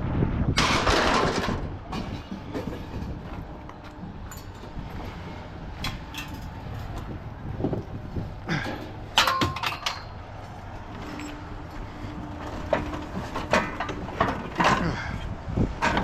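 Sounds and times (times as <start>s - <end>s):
scrap metal clanking: 10.9s - 15.2s, 15.8s - 16.0s.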